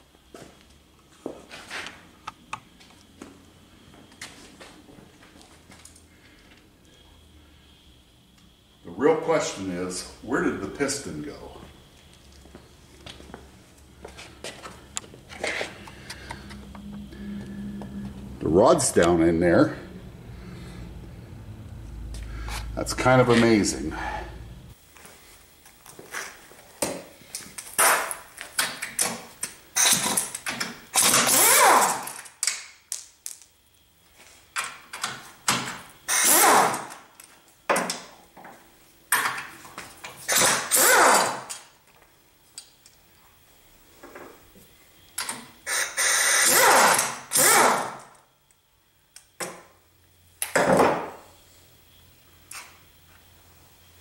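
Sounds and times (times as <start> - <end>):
pneumatic impact wrench whine: 27.7 - 28.2, 29.7 - 32.4, 35.4 - 37.1, 40.2 - 41.7, 45.2 - 48.2.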